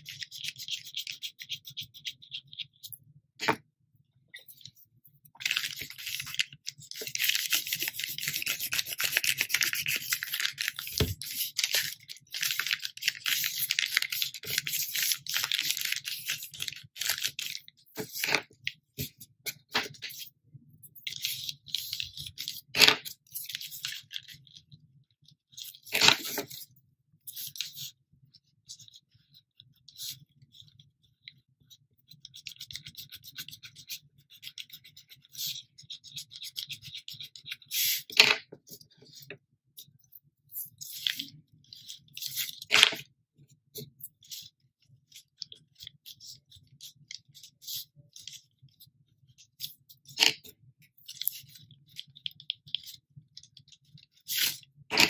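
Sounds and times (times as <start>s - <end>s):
crayon scratching on paper: 0.0s - 3.6s, 5.4s - 20.3s, 32.3s - 38.2s, 54.1s - 55.0s.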